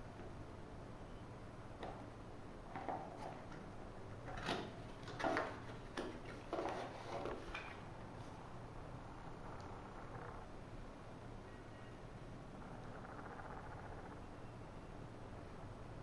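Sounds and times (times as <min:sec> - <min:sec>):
cardboard box scrapes and rustles: 0:06.5 - 0:07.5.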